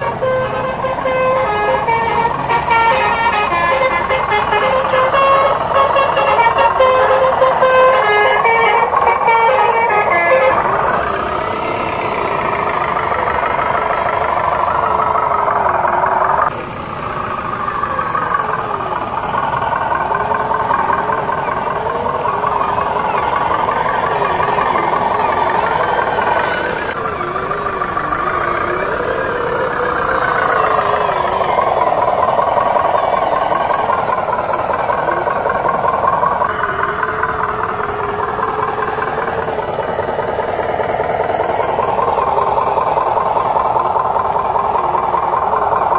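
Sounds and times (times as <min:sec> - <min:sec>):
diesel truck engine revving: 0:00.0 - 0:45.9.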